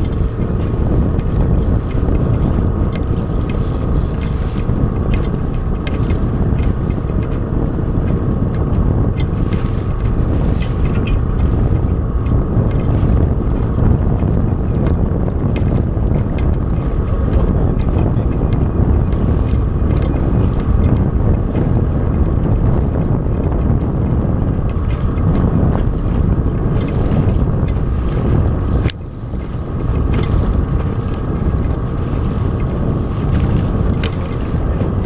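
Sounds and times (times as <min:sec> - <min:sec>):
outboard motor droning: 0:00.0 - 0:35.0
wind buffeting microphone: 0:00.0 - 0:35.0
faint clicks: 0:28.7 - 0:30.4.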